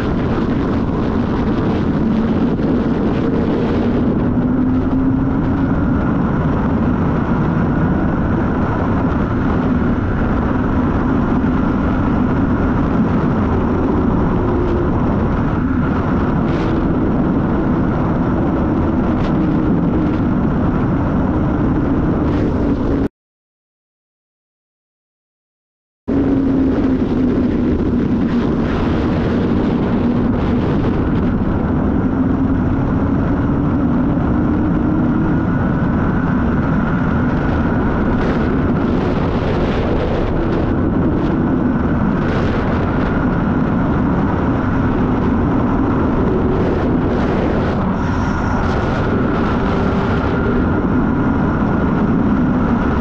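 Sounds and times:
motorcycle engine cruising: 0:00.0 - 0:23.0
wind rush on microphone: 0:00.0 - 0:23.1, 0:26.1 - 0:53.0.

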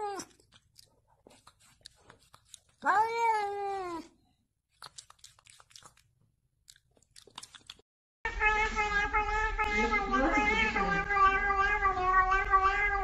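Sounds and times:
cat meowing: 0:02.8 - 0:04.1, 0:08.3 - 0:13.0.

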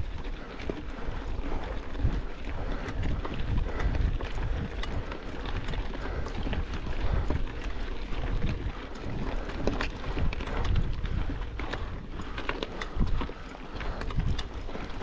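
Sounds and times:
bike rattling with clicks: 0:00.0 - 0:15.0
bike tyres crunching: 0:00.0 - 0:15.0
wind rumble on microphone: 0:00.0 - 0:15.0.

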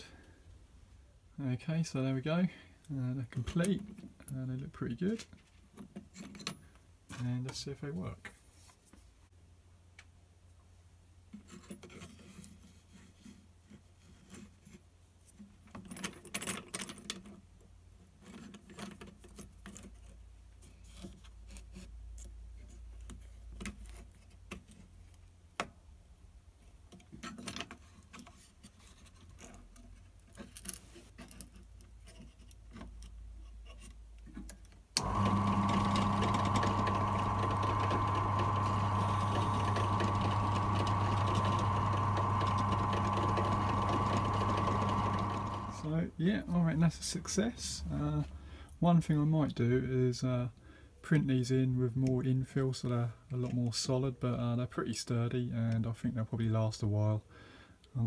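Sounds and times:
clicks and scrapes of small parts: 0:05.0 - 0:07.6, 0:11.3 - 0:25.7, 0:26.6 - 0:34.9
drill press motor running: 0:35.0 - 0:45.9.

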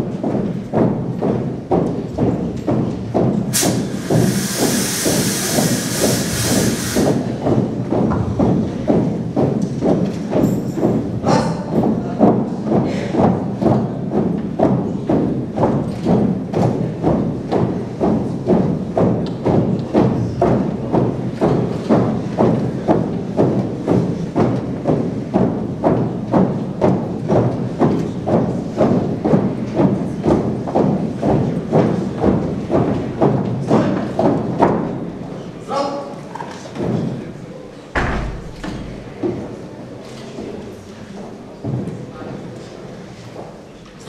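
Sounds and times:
boots stamping on wooden floor: 0:00.0 - 0:05.7, 0:07.0 - 0:35.0.

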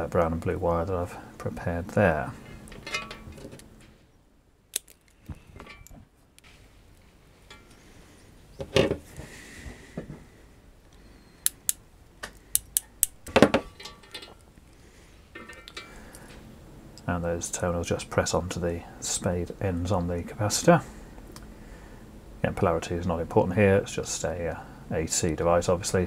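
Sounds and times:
wire stripper clicks and snips: 0:04.7 - 0:05.9, 0:11.4 - 0:13.4.

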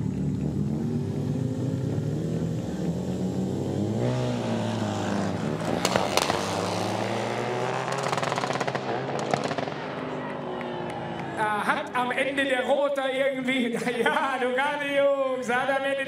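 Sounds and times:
exhaust cracks: 0:00.0 - 0:10.3
motorcycle engine revving: 0:00.0 - 0:10.3.

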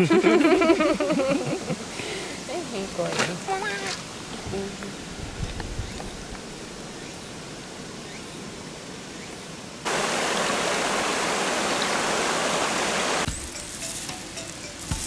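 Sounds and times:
water rushing over rocks: 0:09.8 - 0:13.3
charcoal grill crackling: 0:13.2 - 0:15.0.

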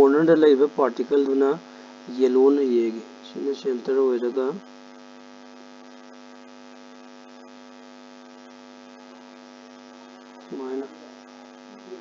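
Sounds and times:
man's voice: 0:00.0 - 0:04.6
electrical hum: 0:00.0 - 0:12.0.

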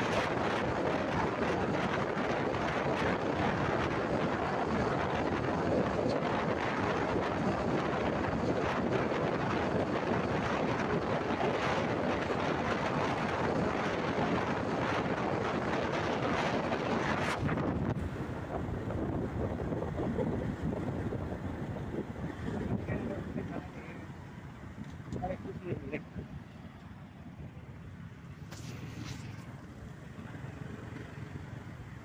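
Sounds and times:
motorbike road noise: 0:00.0 - 0:32.0
wind blowing across microphone: 0:00.0 - 0:32.0.

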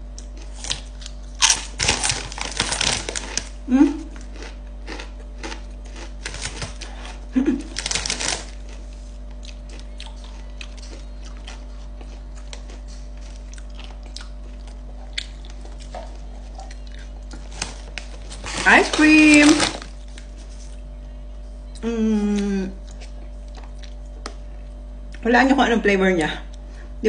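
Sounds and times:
tortilla chips crunching: 0:00.0 - 0:20.9.

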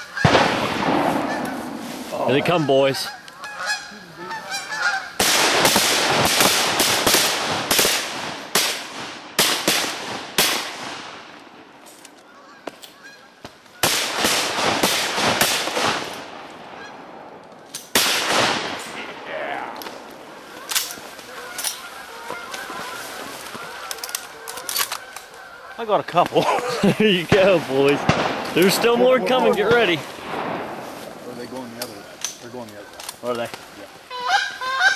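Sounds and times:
geese honking: 0:00.0 - 0:05.9, 0:12.2 - 0:14.0, 0:16.7 - 0:17.0, 0:20.3 - 0:27.8, 0:33.9 - 0:34.9
shotgun blasts: 0:00.2 - 0:02.0, 0:05.2 - 0:11.2, 0:13.8 - 0:17.1, 0:17.9 - 0:19.3, 0:27.3 - 0:31.3.

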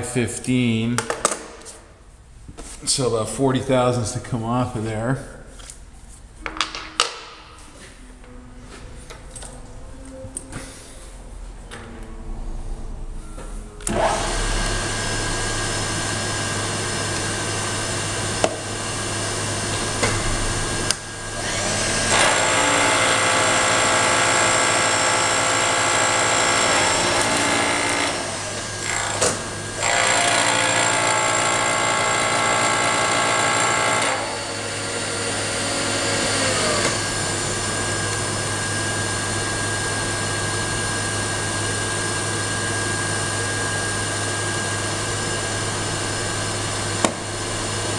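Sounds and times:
end mill cutting metal: 0:13.8 - 0:39.0
milling machine spindle running: 0:13.9 - 0:47.9.

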